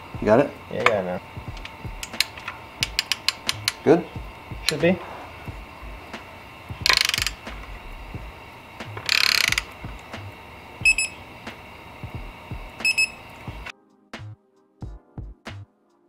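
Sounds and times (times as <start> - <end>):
socket wrench ratcheting: 1.6 - 3.8, 6.8 - 7.7, 8.9 - 10.1.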